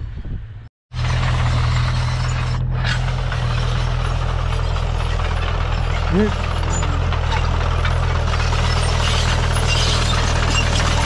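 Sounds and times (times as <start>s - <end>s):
tractor diesel engine running: 0.9s - 11.0s.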